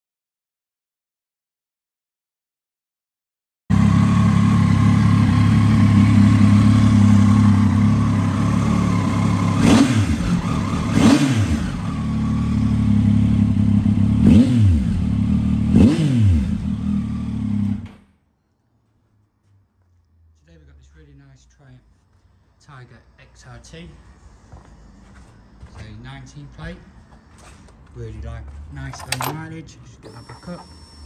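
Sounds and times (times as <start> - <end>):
motorcycle engine idling and revving: 3.7 - 18.1.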